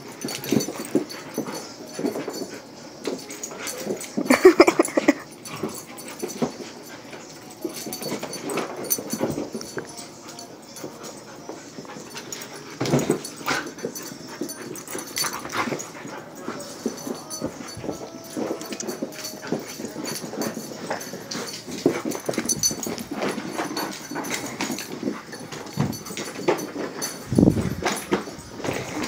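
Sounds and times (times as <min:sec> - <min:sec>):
scuffles and thumps: 0:11.5 - 0:29.0.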